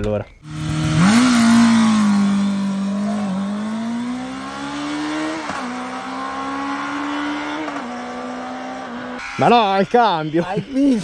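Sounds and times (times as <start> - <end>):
motorcycle engine accelerating: 0.4 - 9.2.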